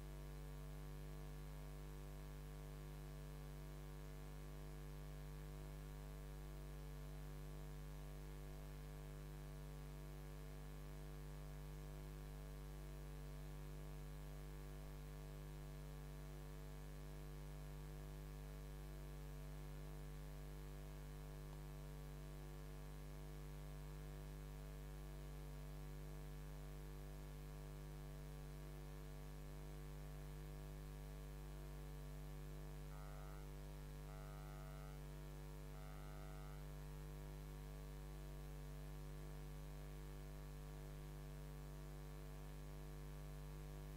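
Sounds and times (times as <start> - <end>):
electrical mains hum: 27.8 - 37.6.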